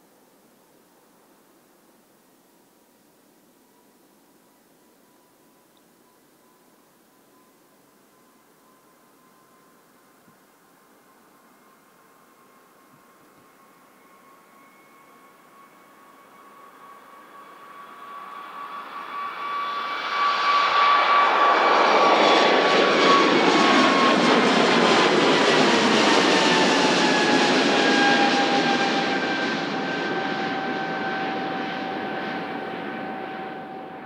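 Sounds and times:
jet engines at takeoff power: 0:13.4 - 0:34.0.

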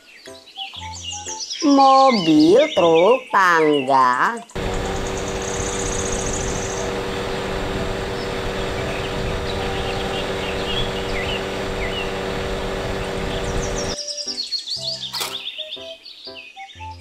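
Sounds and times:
birds chirping: 0:00.2 - 0:17.0
aerial work platform humming: 0:04.6 - 0:14.0.

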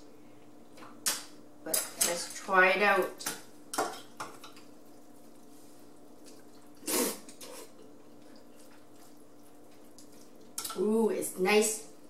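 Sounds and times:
noodle slurp: 0:06.3 - 0:07.8.

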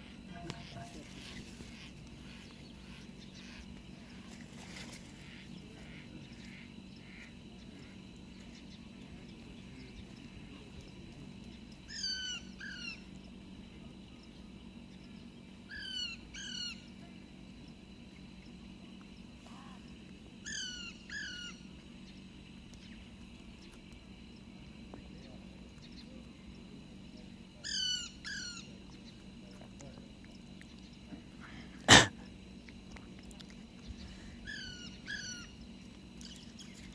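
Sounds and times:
parakeets calling: 0:00.0 - 0:10.6, 0:11.8 - 0:13.1, 0:15.0 - 0:17.0, 0:19.6 - 0:22.2, 0:27.6 - 0:29.2, 0:33.8 - 0:35.6.

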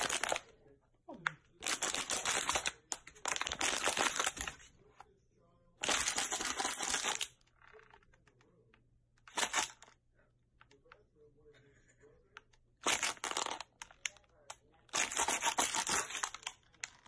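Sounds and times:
plastic bottle crinkling: 0:01.6 - 0:04.7, 0:12.8 - 0:14.2, 0:14.9 - 0:17.0.

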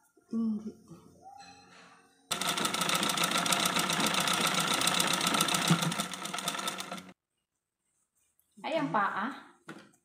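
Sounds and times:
sewing machine clattering: 0:02.3 - 0:07.2.

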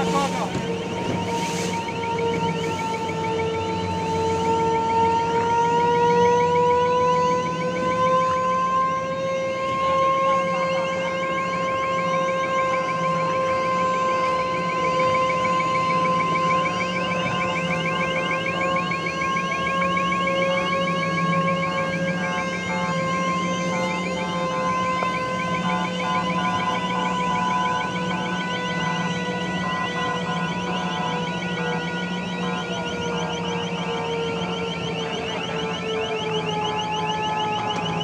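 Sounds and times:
fast-warbling siren: 0:00.0 - 0:38.0
low steady drone: 0:00.0 - 0:38.0
ship horn held note: 0:22.0 - 0:32.7.

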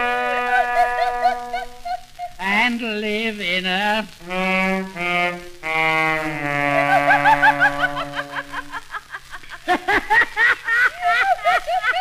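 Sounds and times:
trombone laughing slurs: 0:00.0 - 0:02.4, 0:04.6 - 0:10.3.

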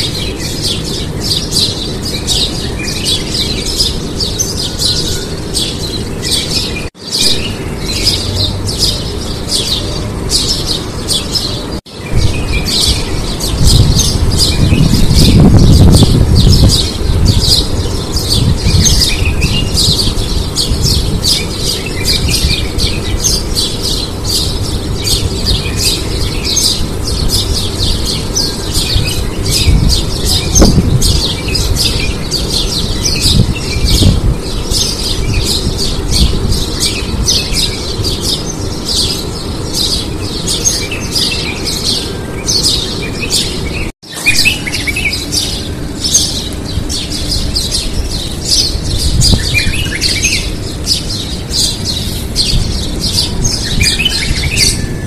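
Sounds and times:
birds chirping and squawking: 0:00.0 - 0:55.0.

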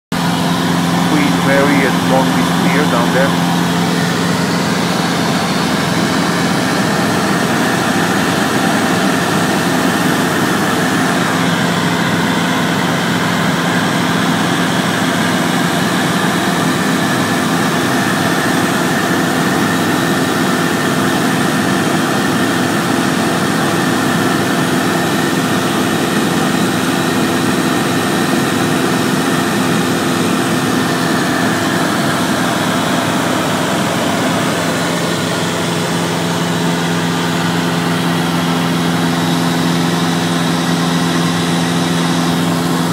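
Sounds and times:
airplane engine droning: 0:00.4 - 0:04.5.

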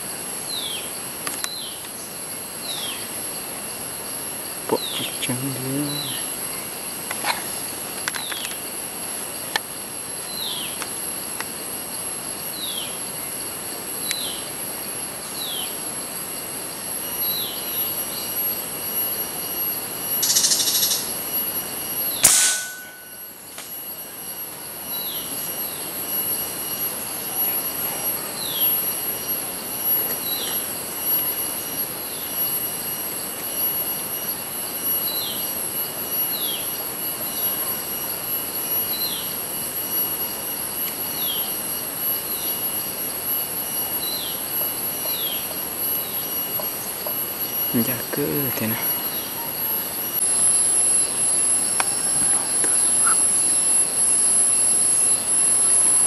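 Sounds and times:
insects droning: 0:00.0 - 0:56.0
sharp crack: 0:22.2 - 0:23.0.

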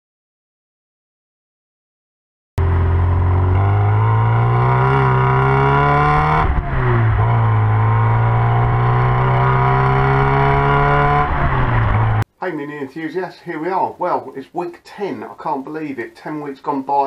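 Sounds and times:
car engine revving through gears: 0:02.6 - 0:12.2.

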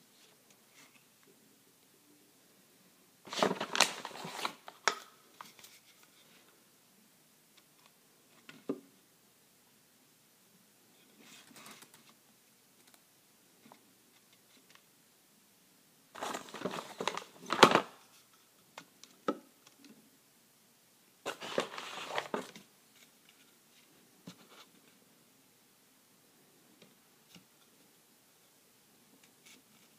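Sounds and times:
plastic packaging crinkling: 0:03.3 - 0:05.1, 0:16.2 - 0:18.0, 0:21.3 - 0:22.6.

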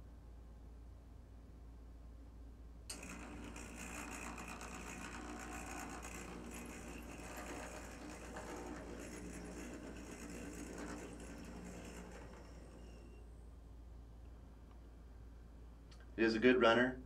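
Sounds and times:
model train motor whirring: 0:02.9 - 0:13.4.

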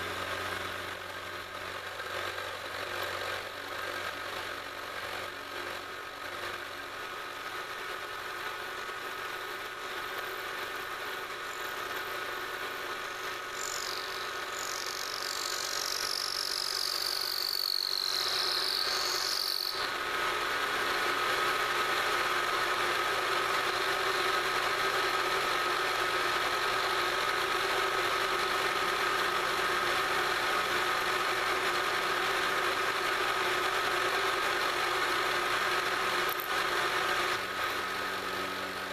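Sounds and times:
milling machine cutting metal: 0:13.1 - 0:36.6
wavering high squeal: 0:13.6 - 0:19.8.

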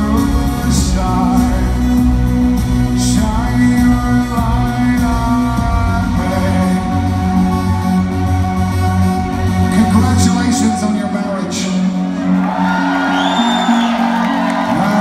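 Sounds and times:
man singing: 0:00.0 - 0:08.5
electronic band music: 0:00.0 - 0:15.0.

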